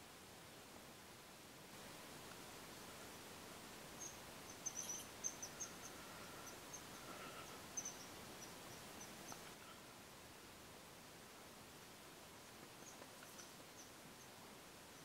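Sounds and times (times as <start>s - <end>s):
faint high-pitched chirps: 4.0s - 9.9s, 12.8s - 15.0s.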